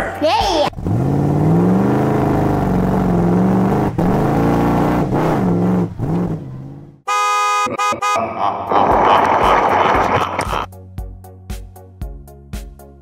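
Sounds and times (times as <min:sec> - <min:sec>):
engine revving: 0:00.7 - 0:08.2.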